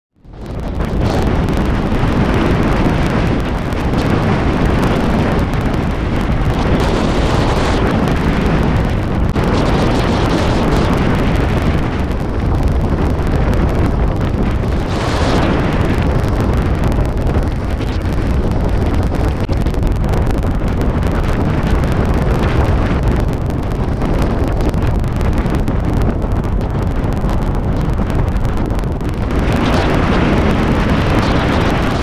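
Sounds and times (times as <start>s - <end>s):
road and tyre noise: 0.2s - 32.0s
wind on microphone: 0.2s - 32.0s.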